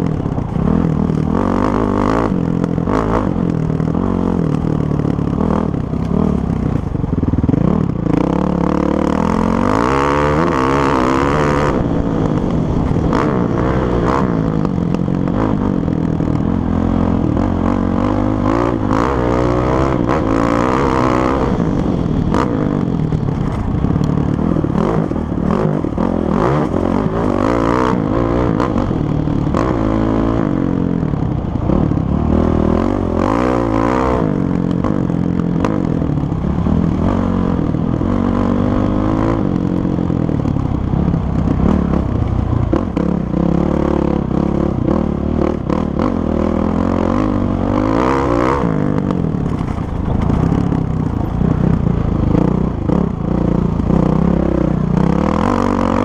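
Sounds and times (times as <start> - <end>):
dirt bike engine revving: 0.0 - 56.0
clattering over bumps: 49.0 - 53.0.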